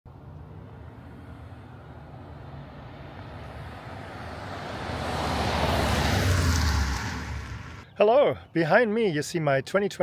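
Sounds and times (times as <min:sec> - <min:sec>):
pickup truck approaching: 0:00.3 - 0:07.9.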